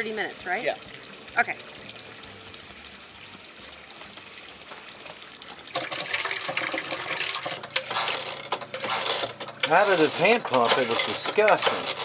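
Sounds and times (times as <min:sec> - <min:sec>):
faucet water running into sink: 0:00.0 - 0:12.0.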